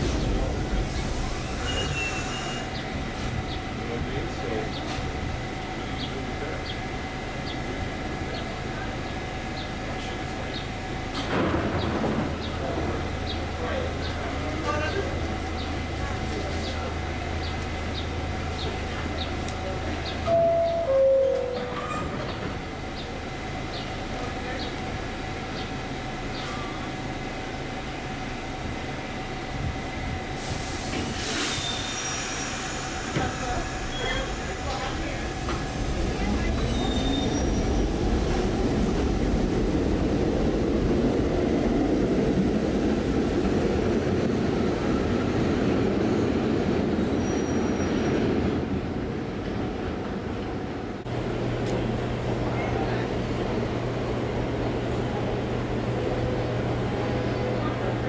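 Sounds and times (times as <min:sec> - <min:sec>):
train equipment humming: 0:00.0 - 0:58.0
air hissing: 0:30.4 - 0:34.7.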